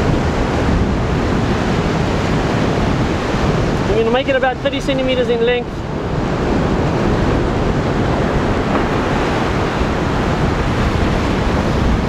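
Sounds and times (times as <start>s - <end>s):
surf breaking on rocks: 0.0s - 12.0s
wind buffeting microphone: 0.0s - 12.0s.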